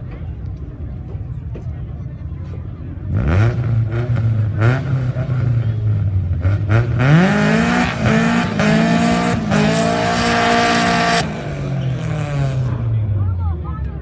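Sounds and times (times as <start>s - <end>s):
drag racing car engines revving: 2.9s - 14.0s.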